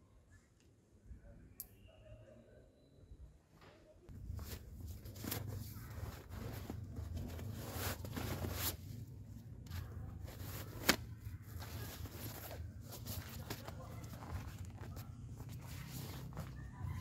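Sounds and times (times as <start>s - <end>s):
fabric rustling and crinkling: 4.1s - 17.0s.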